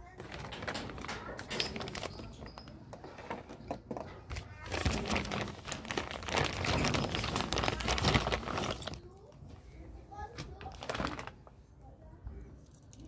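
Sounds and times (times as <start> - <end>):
plastic bag crinkling: 0.0 - 2.8, 4.3 - 9.3, 10.5 - 11.5.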